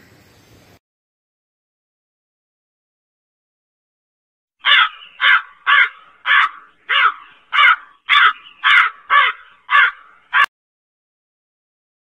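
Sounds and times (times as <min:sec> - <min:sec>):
crow cawing: 0:04.6 - 0:10.5.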